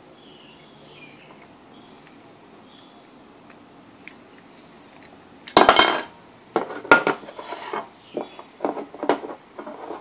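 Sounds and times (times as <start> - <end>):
plastic parts clattering: 5.5 - 10.0.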